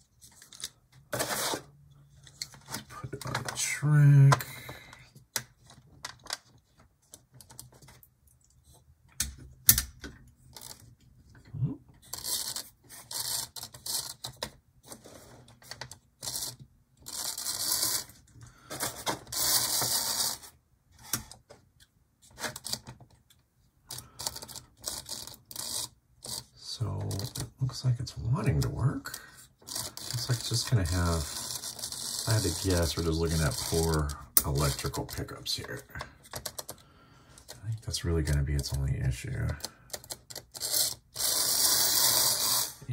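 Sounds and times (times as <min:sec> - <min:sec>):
model clicking and clattering: 0:28.6 - 0:36.8
model train motor whirring: 0:29.7 - 0:32.6, 0:40.6 - 0:42.8.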